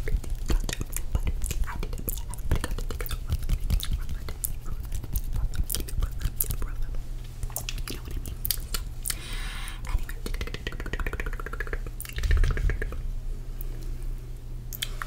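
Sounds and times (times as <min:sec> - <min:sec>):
wet mouth clicks and smacks: 0:00.1 - 0:06.8, 0:07.4 - 0:09.2, 0:09.9 - 0:13.0, 0:14.7 - 0:15.0.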